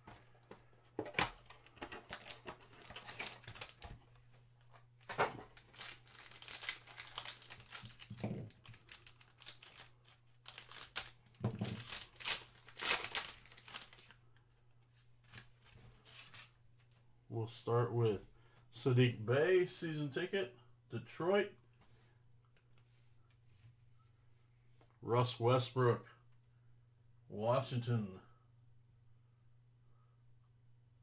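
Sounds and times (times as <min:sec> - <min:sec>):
foil card pack crinkling and tearing: 0:01.1 - 0:04.0, 0:05.1 - 0:14.2.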